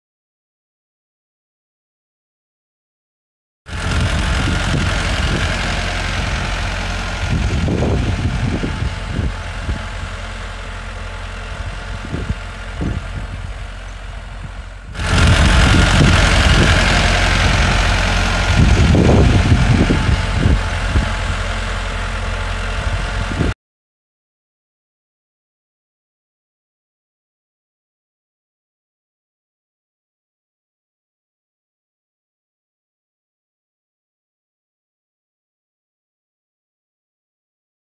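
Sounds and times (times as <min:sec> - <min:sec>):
tractor diesel engine under load: 0:03.7 - 0:23.6.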